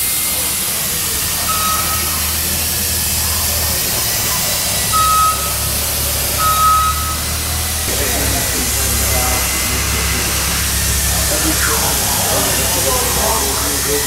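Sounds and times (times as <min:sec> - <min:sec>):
loud steady hiss: 0:00.0 - 0:14.0
high electronic warning beep: 0:01.4 - 0:02.4, 0:04.9 - 0:07.4.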